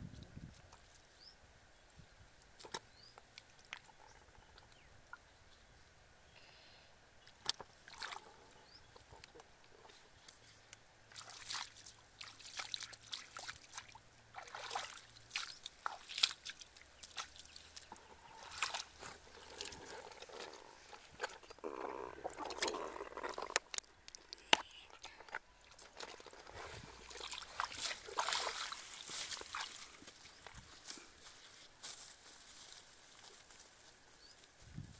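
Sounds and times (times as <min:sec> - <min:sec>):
muddy water splashing: 0:07.2 - 0:10.0, 0:11.1 - 0:30.8.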